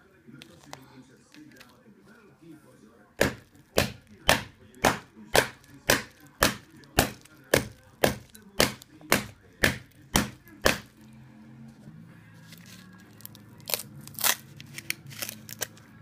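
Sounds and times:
hammer striking bagged circuit board: 3.2s - 10.9s.

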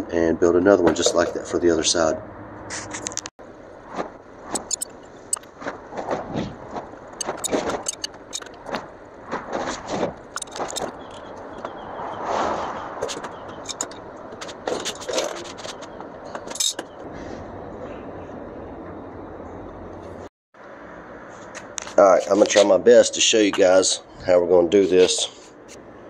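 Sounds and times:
rustling: 2.7s - 11.5s
metal parts clinking: 4.6s - 5.5s, 7.2s - 8.7s, 10.3s - 11.3s, 13.0s - 16.8s.

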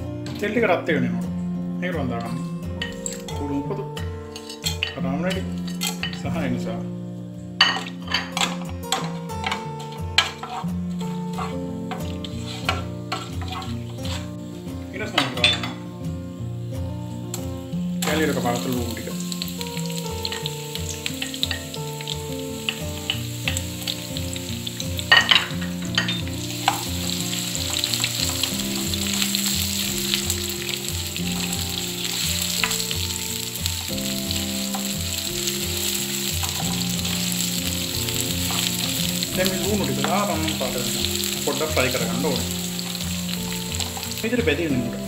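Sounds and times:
onions sizzling in oil: 2.8s - 6.3s, 7.5s - 45.0s
wooden spoon stirring: 10.2s - 14.4s, 20.0s - 44.4s.

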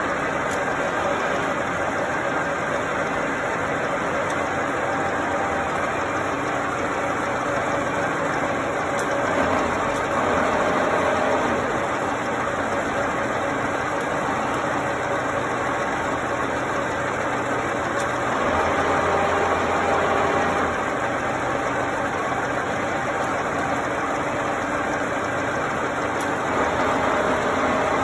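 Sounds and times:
milling machine hum: 0.0s - 28.0s.

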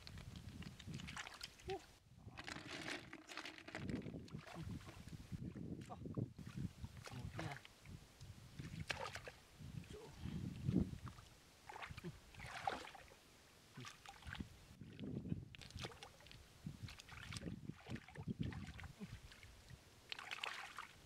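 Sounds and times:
hands splashing in muddy water: 0.0s - 1.8s, 8.6s - 9.4s, 11.0s - 13.1s, 15.6s - 19.5s, 20.1s - 21.0s.

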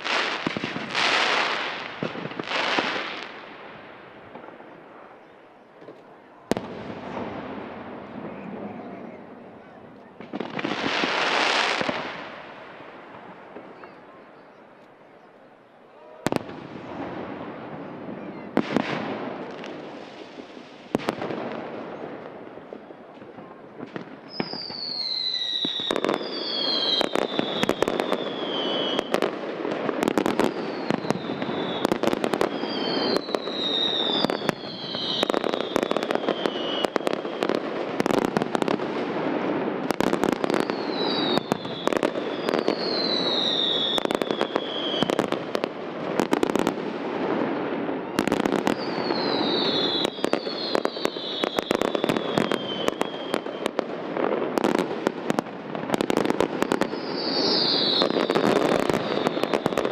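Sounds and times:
fireworks bursting with sharp bangs: 0.0s - 59.9s
whistling fireworks: 0.0s - 59.9s.

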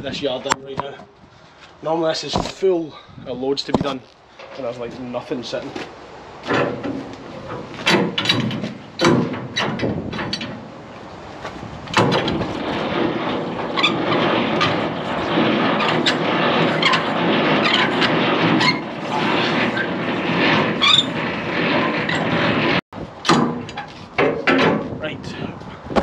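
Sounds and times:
metal clanks of couplings: 6.4s - 10.7s.

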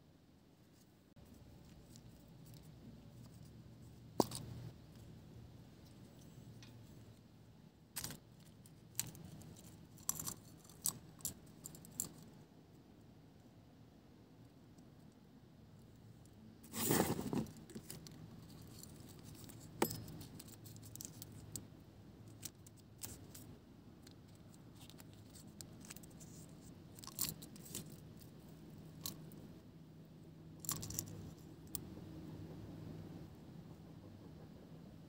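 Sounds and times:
small hard pieces clicking and rattling: 8.0s - 12.3s, 30.6s - 31.2s.

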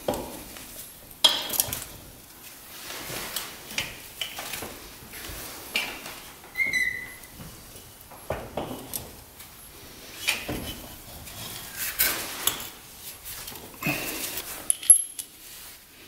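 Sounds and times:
metal tools clanking: 14.6s - 15.3s.

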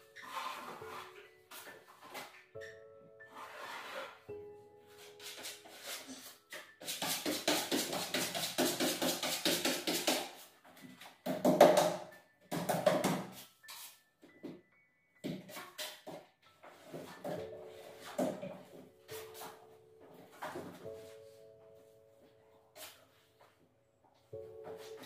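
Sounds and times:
putty knife scraping plasterboard: 0.2s - 2.4s, 3.3s - 4.2s, 5.2s - 10.5s.

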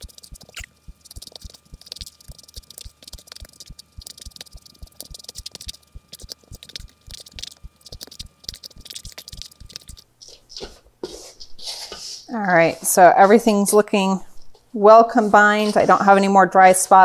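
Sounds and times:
wooden spoon scraping steel bowl: 15.1s - 16.3s.

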